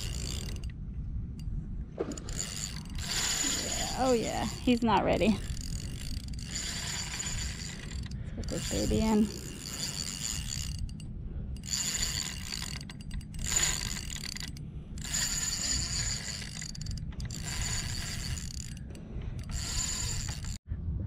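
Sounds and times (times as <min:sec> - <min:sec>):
fishing reel gears whirring: 0:00.0 - 0:00.8, 0:01.4 - 0:20.6.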